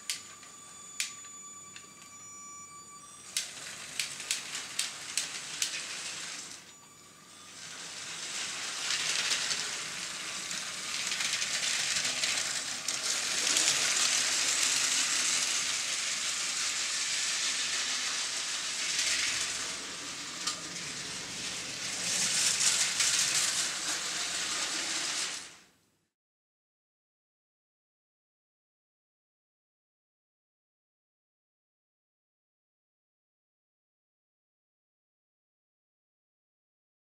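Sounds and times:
toy train rattling on track: 0:03.2 - 0:06.7, 0:07.4 - 0:25.7.

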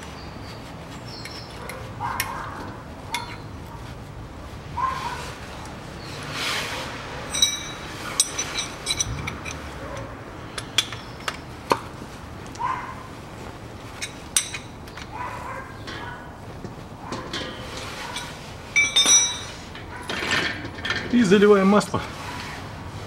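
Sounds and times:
metallic clinks of hand tool: 0:07.3 - 0:11.4, 0:17.3 - 0:19.6.

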